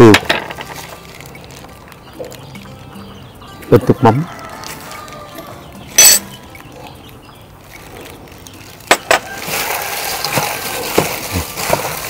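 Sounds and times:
kitchen utensil clatter: 0:06.0 - 0:06.3
wet rustling of marinating meat: 0:07.6 - 0:12.0.

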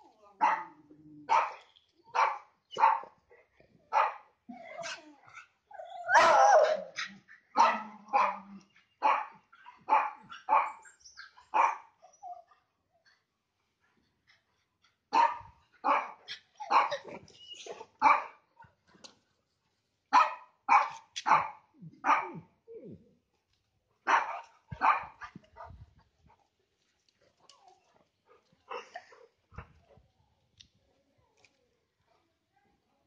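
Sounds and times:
dog barking: 0:07.6 - 0:10.8, 0:11.6 - 0:11.9, 0:15.1 - 0:17.0, 0:18.0 - 0:18.4, 0:20.1 - 0:22.4, 0:24.1 - 0:25.3.

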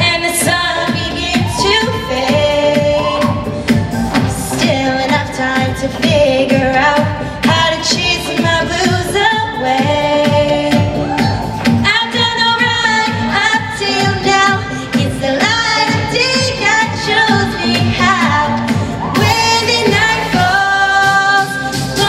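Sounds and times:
choir singing upbeat song: 0:07.4 - 0:22.0.

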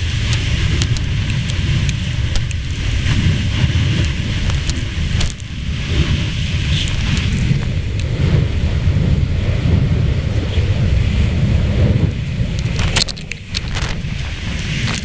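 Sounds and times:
jet engines roaring: 0:00.0 - 0:15.0
wind buffeting microphone: 0:00.0 - 0:15.0
sharp ticks: 0:00.2 - 0:05.6, 0:06.7 - 0:08.1.

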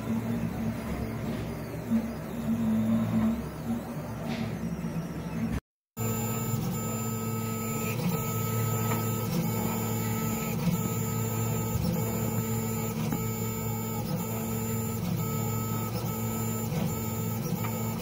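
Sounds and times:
printer motor whine: 0:00.0 - 0:18.0
cooling fan hum: 0:05.1 - 0:18.0.

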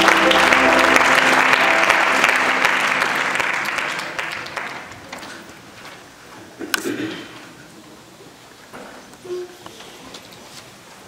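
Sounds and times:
congregation applauding: 0:00.0 - 0:05.8.

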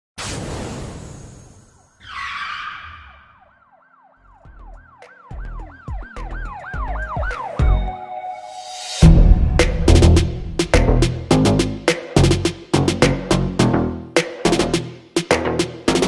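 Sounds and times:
siren yelping: 0:01.8 - 0:08.3
whoosh: 0:08.6 - 0:11.3
deep bass hits: 0:09.0 - 0:13.2.

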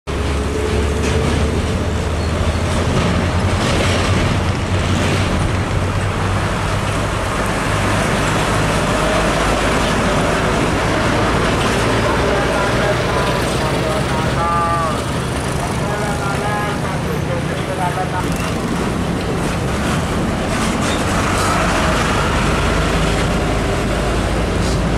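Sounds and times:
road traffic: 0:00.0 - 0:24.9
motorcycles passing: 0:00.1 - 0:24.9
truck diesel engine droning: 0:00.1 - 0:24.9.

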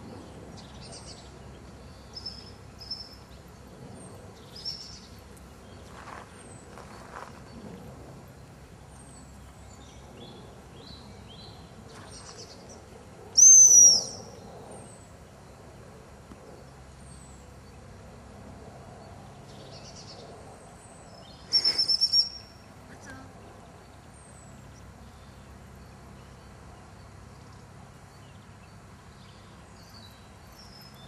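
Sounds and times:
shrill dog whistle blast: 0:13.4 - 0:14.2, 0:21.5 - 0:22.4
faint bird chirps: 0:13.4 - 0:14.9, 0:21.1 - 0:23.9.

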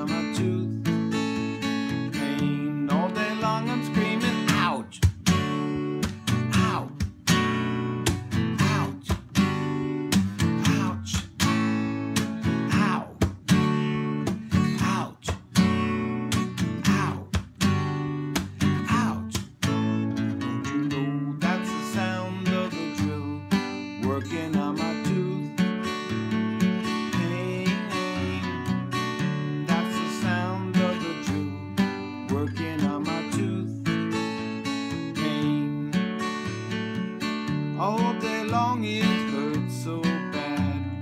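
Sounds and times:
man singing: 0:00.0 - 0:05.6, 0:06.3 - 0:07.6, 0:08.4 - 0:11.6, 0:12.4 - 0:13.4, 0:14.3 - 0:15.8, 0:16.5 - 0:17.5, 0:18.6 - 0:36.6, 0:37.2 - 0:41.0
acoustic guitar strumming: 0:00.0 - 0:41.0.

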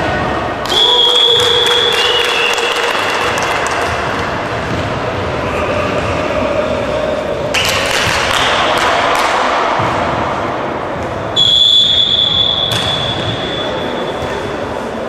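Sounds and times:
volleyballs thudding: 0:07.6 - 0:14.4.

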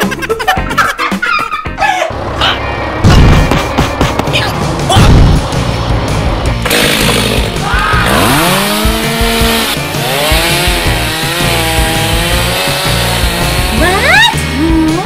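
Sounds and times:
toy chainsaw motor buzzing: 0:06.6 - 0:07.5, 0:08.1 - 0:14.0.

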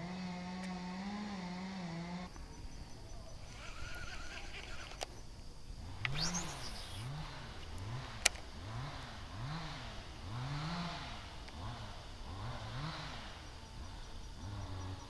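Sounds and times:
fishing reel gear whine: 0:02.2 - 0:10.8, 0:11.6 - 0:15.0
sharp reel click: 0:06.0 - 0:08.4.

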